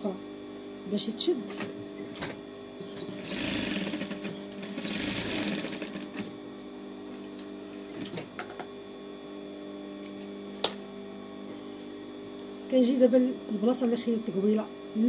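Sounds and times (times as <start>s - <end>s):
sewing machine stitching: 3.0s - 6.3s.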